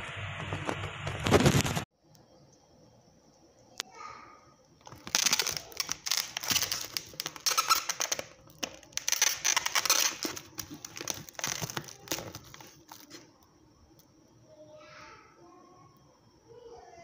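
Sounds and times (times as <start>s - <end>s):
plastic wrap crinkling: 4.8s - 13.3s.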